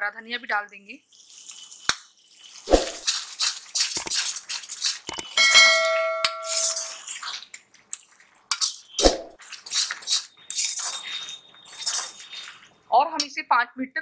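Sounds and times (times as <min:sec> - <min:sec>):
spatula scraping paste in pan: 0:01.1 - 0:12.8
bell-like ring: 0:05.4 - 0:07.0.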